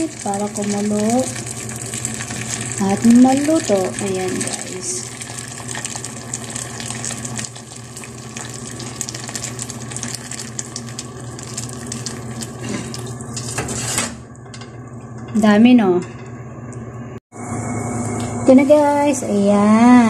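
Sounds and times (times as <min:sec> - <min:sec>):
water pouring into stew: 0:00.0 - 0:13.6.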